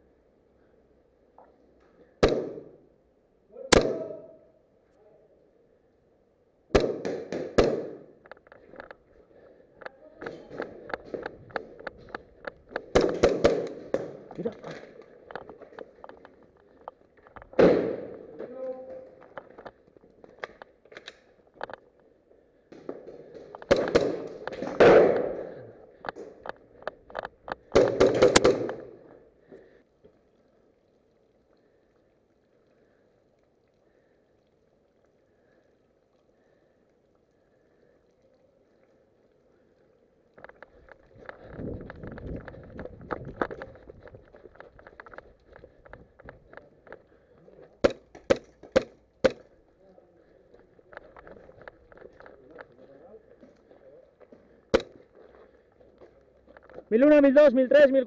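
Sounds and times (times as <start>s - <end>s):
airsoft gun shots echoing: 2.2s - 2.8s, 3.7s - 4.4s, 6.7s - 8.1s, 12.9s - 14.2s, 17.6s - 18.2s, 23.7s - 25.5s, 27.7s - 29.0s, 47.8s - 49.5s.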